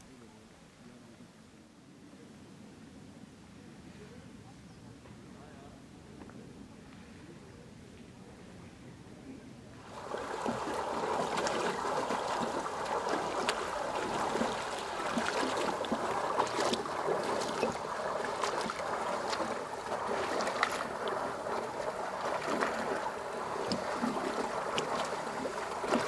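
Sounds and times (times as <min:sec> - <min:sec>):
small water splashes: 0:09.8 - 0:26.0
water churning and gurgling: 0:09.8 - 0:26.0.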